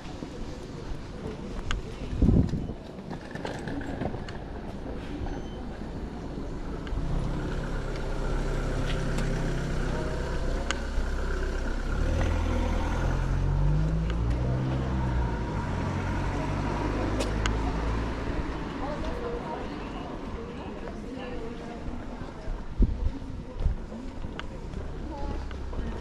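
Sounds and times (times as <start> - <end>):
vehicle engine running: 6.6 - 17.8.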